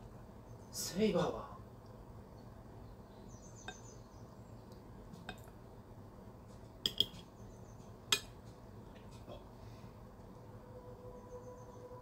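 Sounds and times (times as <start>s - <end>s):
cutlery clinking on a plate: 6.9s - 7.2s, 8.1s - 8.4s.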